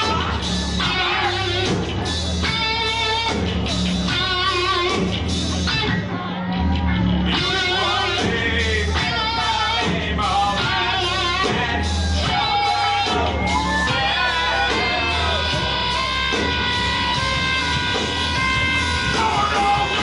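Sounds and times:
metal band playing live: 0.0 - 20.0
lead vocal singing: 7.3 - 20.0.

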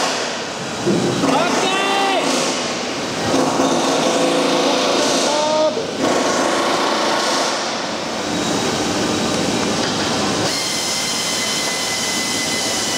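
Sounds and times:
machinery noise with hiss: 0.0 - 12.9.

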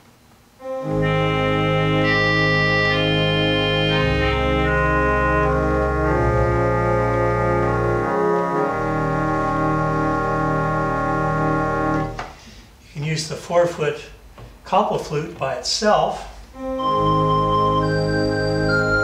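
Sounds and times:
organ melody: 0.6 - 12.2, 16.5 - 19.0
organ bass notes: 0.6 - 12.3, 16.3 - 19.0.

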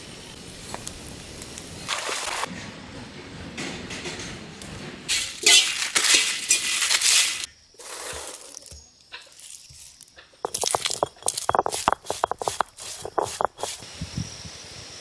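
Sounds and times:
metal spatula scraping spices in wok: 10.4 - 13.8.

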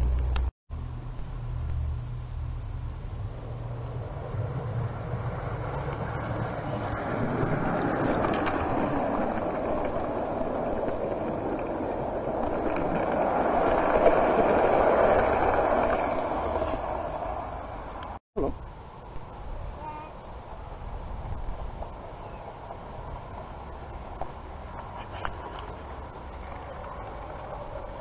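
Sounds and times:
model train wheels rumbling: 3.3 - 18.1.

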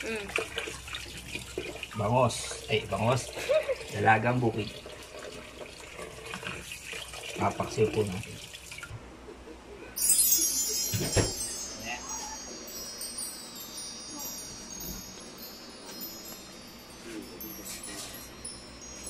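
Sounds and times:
chimes ringing: 10.0 - 19.0
thump: 11.0 - 11.4.

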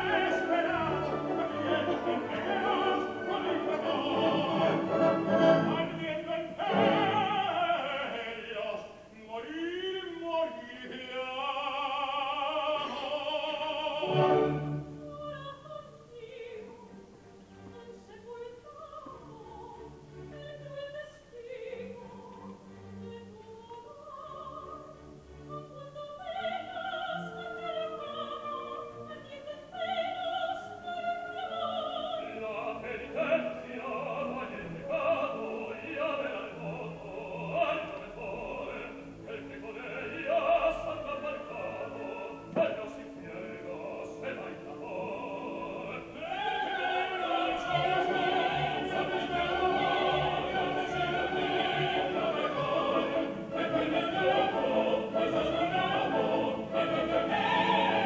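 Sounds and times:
orchestra playing: 0.0 - 8.0, 13.6 - 15.2, 33.2 - 58.0
ensemble of voices singing: 0.0 - 58.0
opera singing: 0.0 - 58.0.

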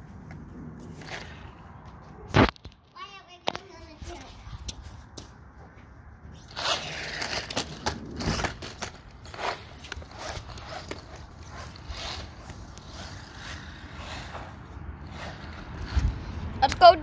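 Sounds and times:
rc car motor and tyres scraping: 0.4 - 1.8, 6.4 - 17.0.

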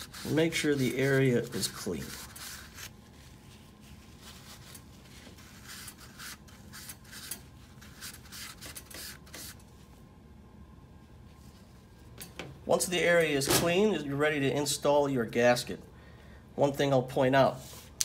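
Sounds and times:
cloth rag wiping metal: 0.0 - 9.6.

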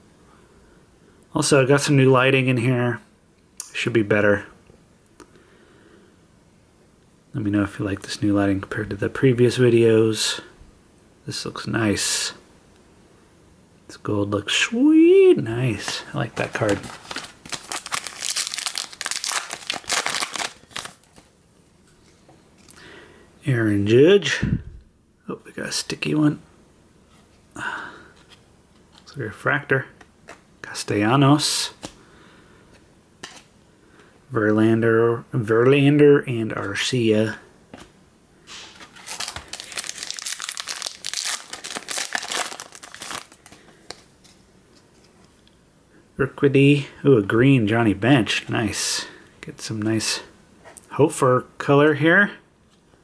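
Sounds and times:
foil wrapper crinkling and tearing: 15.8 - 21.3, 38.7 - 44.1.

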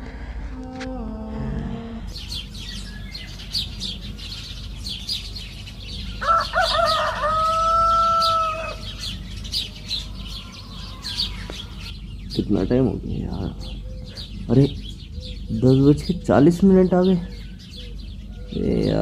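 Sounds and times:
small birds chirping: 0.0 - 19.0
rooster crowing: 6.2 - 9.0.

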